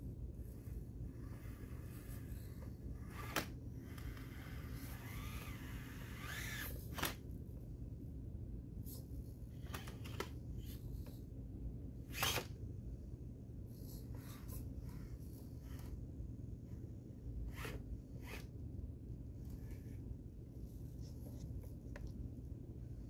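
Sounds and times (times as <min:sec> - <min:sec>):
small electric motor whining: 0:03.0 - 0:07.1.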